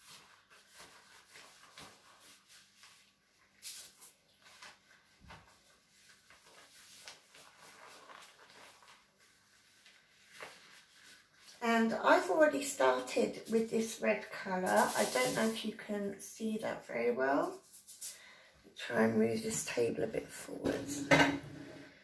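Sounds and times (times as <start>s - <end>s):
rubber gloves being pulled on: 0.0s - 11.6s
damp yarn rustling on foil: 0.0s - 18.2s.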